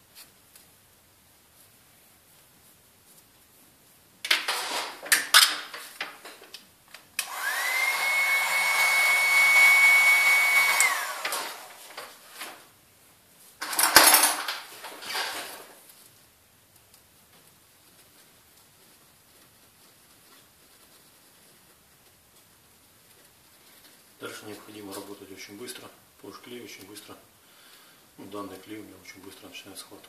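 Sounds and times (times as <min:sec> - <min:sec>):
small electric motor whining: 0:07.2 - 0:11.4
clattering and rustling handling: 0:13.4 - 0:25.1.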